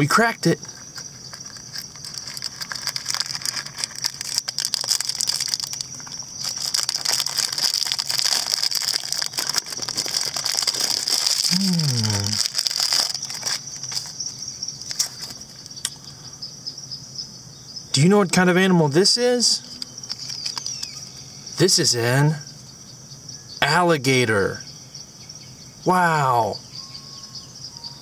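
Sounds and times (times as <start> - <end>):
crickets chirring: 0.0 - 28.0
foil wrapper crinkling: 0.6 - 15.6, 20.0 - 21.2
low vocal hum: 11.5 - 12.5.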